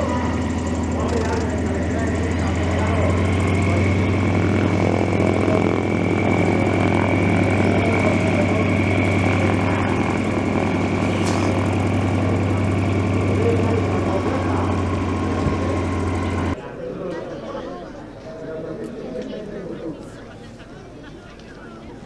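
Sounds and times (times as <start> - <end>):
constant high whine: 0.0 - 16.6
radial aircraft engine droning: 0.0 - 22.0.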